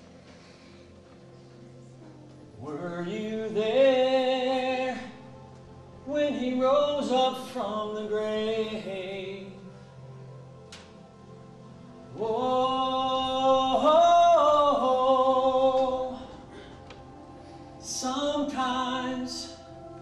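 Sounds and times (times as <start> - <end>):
low drone: 0.0 - 20.0
man singing wordless phrases: 2.6 - 5.3, 6.0 - 9.8, 12.1 - 16.5, 17.8 - 19.6.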